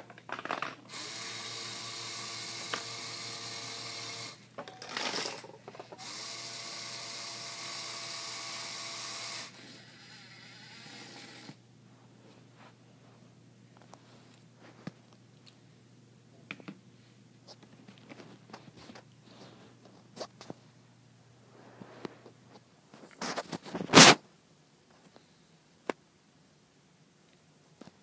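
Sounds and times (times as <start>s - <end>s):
plastic parts clattering: 0.0s - 0.9s, 4.6s - 6.1s
small electric motor whining: 0.9s - 4.4s, 6.0s - 11.6s.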